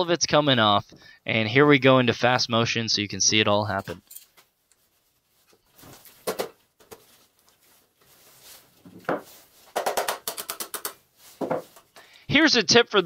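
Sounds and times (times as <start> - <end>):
hand tools clinking on metal: 3.7 - 4.4.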